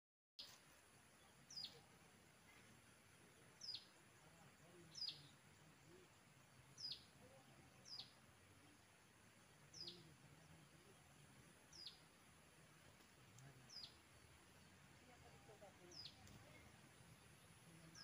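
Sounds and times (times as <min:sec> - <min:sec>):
small songbird calling: 0:01.2 - 0:08.8, 0:09.7 - 0:12.4, 0:13.3 - 0:14.8, 0:15.6 - 0:18.0.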